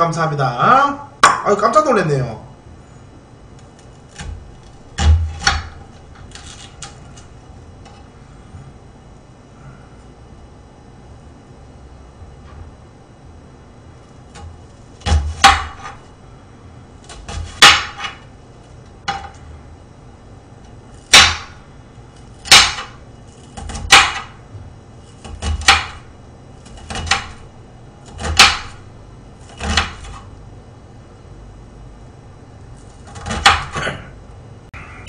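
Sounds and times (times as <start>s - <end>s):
knife chopping on glass board: 4.1s - 6.9s, 14.3s - 16.0s, 17.1s - 18.2s, 21.0s - 21.6s, 22.4s - 24.4s, 25.2s - 27.4s, 28.0s - 28.8s, 29.4s - 30.3s, 33.1s - 33.8s.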